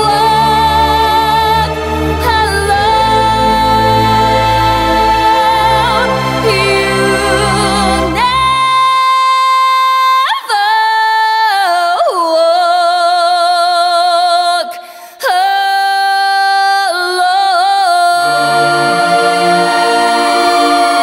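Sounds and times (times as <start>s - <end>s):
instrumental accompaniment: 0.0s - 8.8s, 18.2s - 21.0s
person singing with vibrato: 0.0s - 21.0s.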